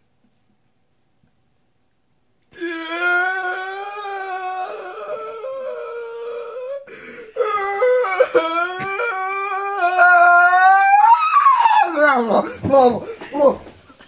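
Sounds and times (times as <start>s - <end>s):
man singing wordless high tones: 2.6s - 6.9s.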